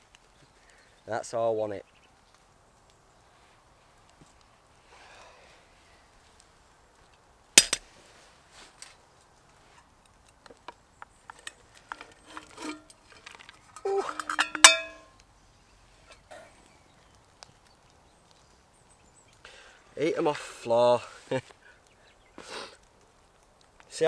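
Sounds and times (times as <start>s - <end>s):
metal pot and lid clanking: 11.4s - 15.1s
ringing metal clang: 13.9s - 15.1s.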